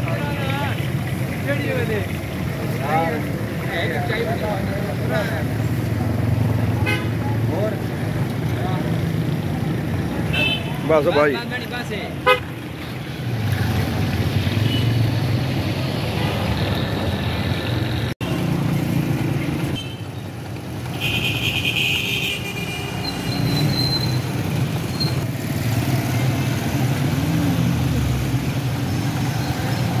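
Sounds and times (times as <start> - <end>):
motorcycle and rickshaw engines: 0.0 - 30.0
vehicle horn: 6.8 - 7.2, 10.3 - 10.8, 12.2 - 12.5.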